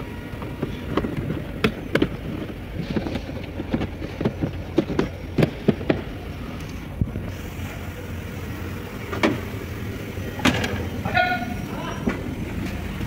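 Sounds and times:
hands and tools handling things: 0.4 - 6.8.

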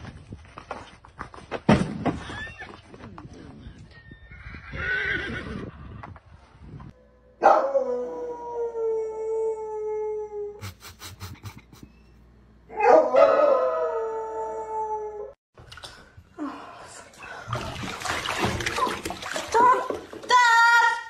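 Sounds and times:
dog howling: 12.7 - 15.4.

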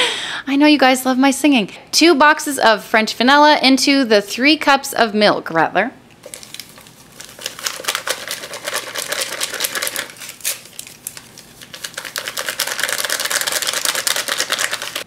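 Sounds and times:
paper pouch crinkling: 6.2 - 15.0
powder pouring into a bowl: 6.2 - 15.0.

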